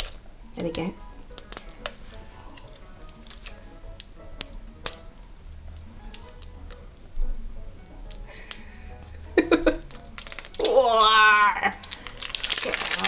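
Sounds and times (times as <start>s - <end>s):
faint background music: 0.0s - 13.0s
plastic wrapper peeled off: 1.3s - 3.6s, 9.7s - 13.0s.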